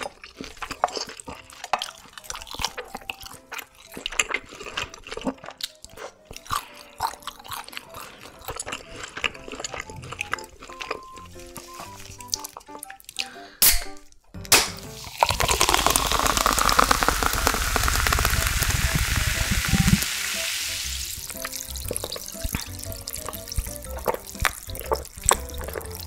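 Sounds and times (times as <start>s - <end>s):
can cracked open: 14.5s - 20.1s
soda fizzing: 14.8s - 26.0s
cider pouring into glass: 14.9s - 24.4s.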